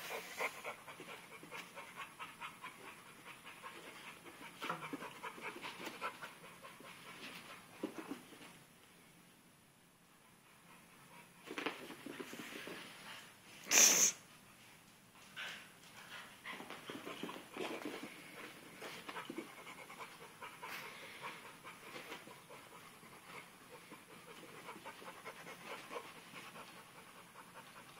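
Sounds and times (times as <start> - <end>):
puppy breathing hard: 17.6 - 27.9.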